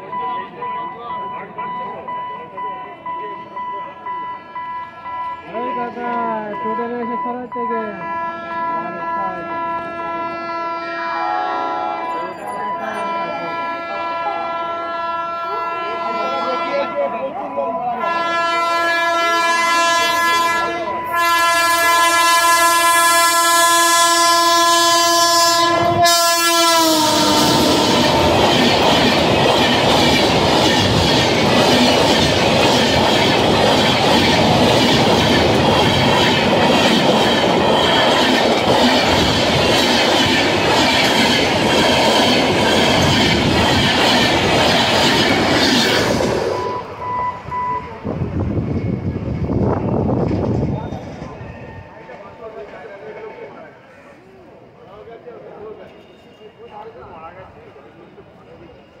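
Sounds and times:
train horn blasts: 7.8 - 12.2, 13.0 - 17.1, 18.0 - 28.6
train coaches rushing past: 8.6 - 59.0.

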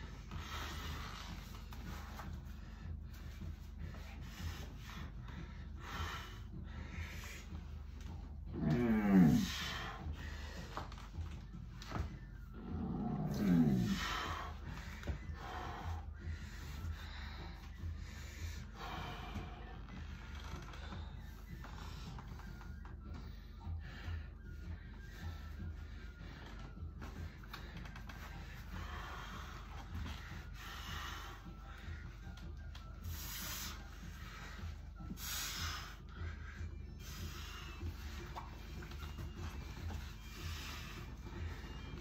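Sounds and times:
rubbing and rustling of clothing: 0.0 - 15.6
heavy breathing: 0.0 - 42.0
man straining groan: 8.5 - 9.6.

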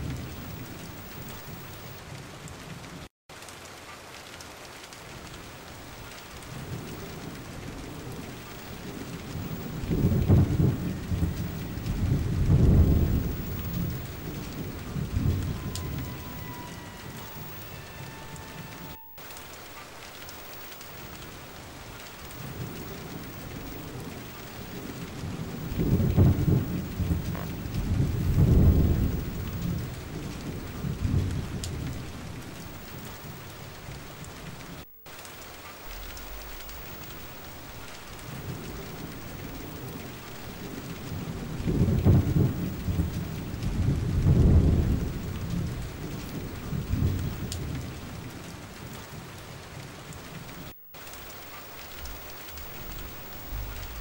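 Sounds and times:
rolling thunder: 0.0 - 2.8, 5.1 - 54.0
steady rain: 0.0 - 54.0.

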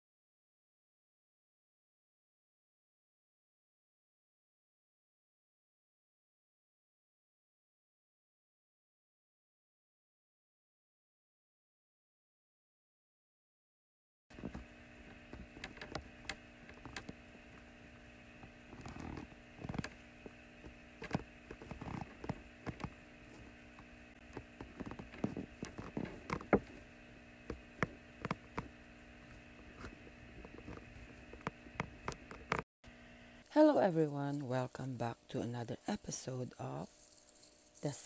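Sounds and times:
steady electrical hum: 14.3 - 38.0
small clicks and soft knocks: 14.4 - 17.6, 18.4 - 26.8, 27.5 - 28.7.

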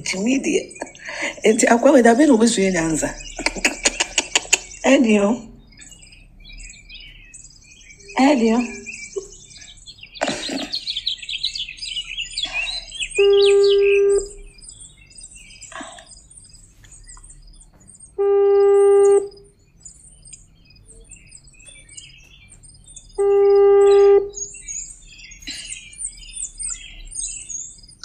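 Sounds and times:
birds chirping: 0.0 - 28.0
phone calling tone beep: 13.2 - 14.5, 18.2 - 19.4, 23.2 - 24.4.

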